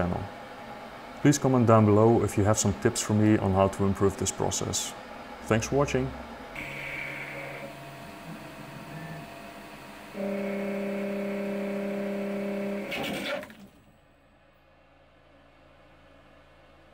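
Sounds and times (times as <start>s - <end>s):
lathe machine hum: 0.0s - 13.4s.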